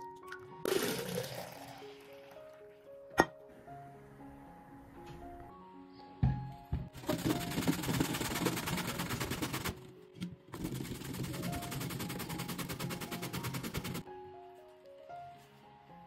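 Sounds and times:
vegetable grated on metal grater: 7.0 - 9.8, 10.6 - 14.0.

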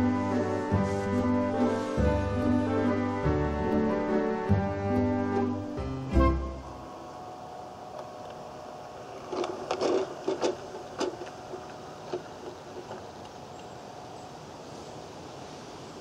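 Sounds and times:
wheels clicking on track: 7.8 - 14.2.

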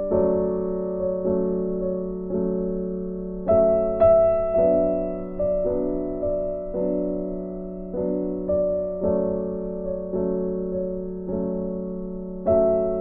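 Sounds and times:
slow gentle piano: 0.0 - 13.0.

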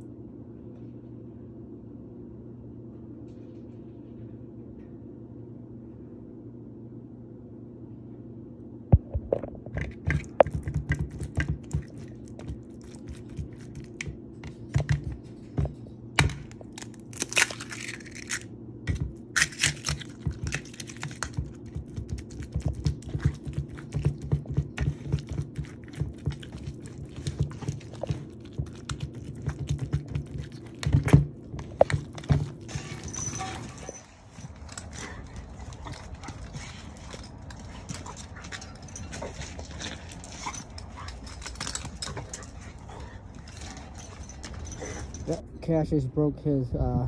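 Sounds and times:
wet meat mix squishing: 19.6 - 32.7.

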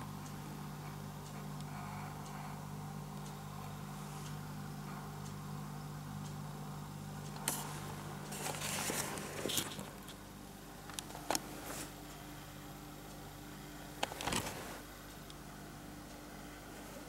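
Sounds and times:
close rustling and clicks: 7.3 - 10.2, 10.8 - 12.2, 13.9 - 15.4.

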